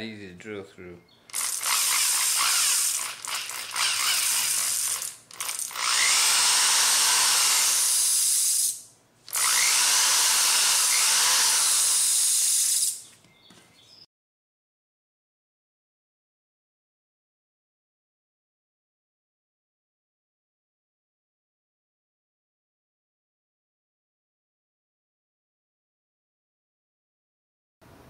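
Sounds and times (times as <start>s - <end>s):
cordless drill boring holes: 1.3s - 13.0s.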